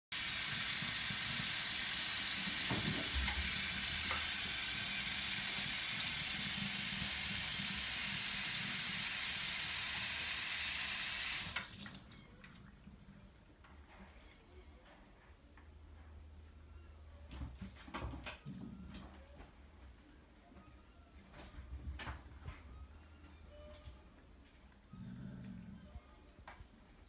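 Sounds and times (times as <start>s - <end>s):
tap running into metal sink: 2.1s - 4.6s.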